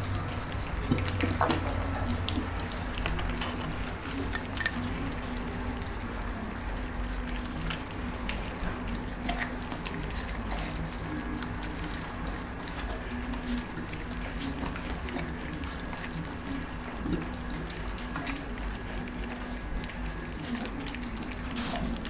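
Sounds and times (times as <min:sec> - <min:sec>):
puppies lapping and smacking: 0:00.0 - 0:22.0.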